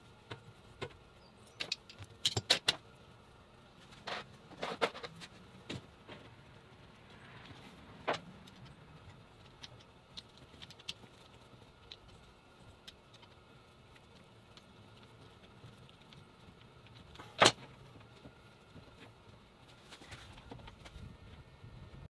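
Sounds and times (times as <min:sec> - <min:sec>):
screwdriver and metal parts clicking: 0:01.5 - 0:02.8.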